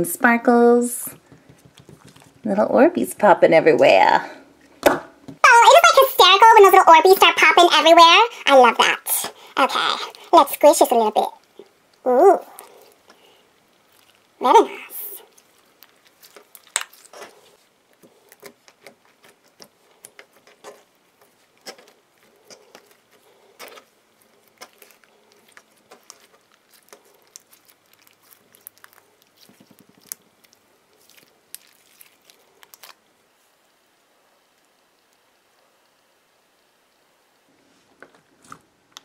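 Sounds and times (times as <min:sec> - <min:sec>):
slime squelching by hand: 0:01.2 - 0:02.6, 0:07.0 - 0:33.7.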